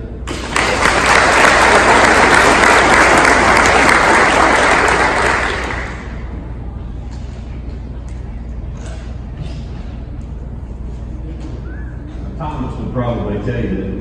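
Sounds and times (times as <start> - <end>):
audience applauding: 0.3 - 6.3.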